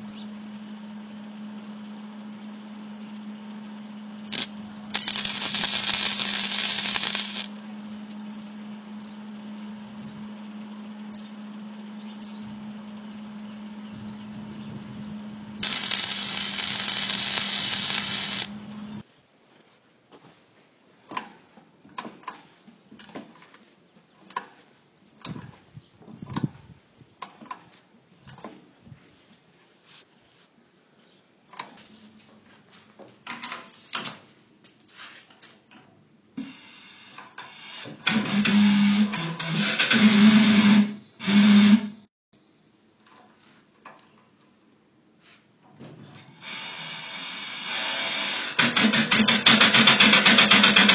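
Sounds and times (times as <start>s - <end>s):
steady hum: 0.0s - 19.0s
engine running on air: 0.1s - 8.0s, 8.7s - 19.0s, 47.8s - 50.9s
arc welding crackling hiss: 4.3s - 7.6s, 15.6s - 19.0s, 46.4s - 48.6s.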